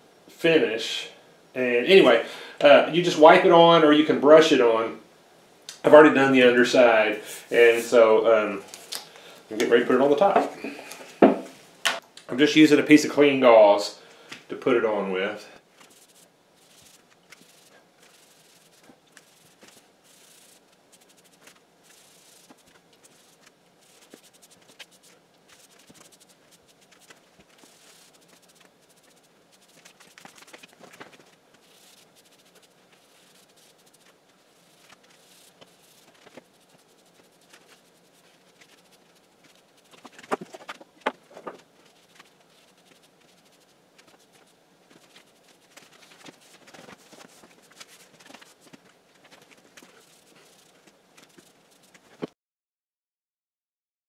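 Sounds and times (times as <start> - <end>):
gauze pad rubbing on wood: 15.8 - 52.1.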